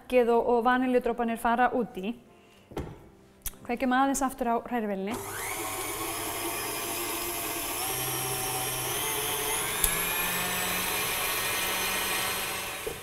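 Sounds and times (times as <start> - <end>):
stand mixer motor running: 5.1 - 13.0.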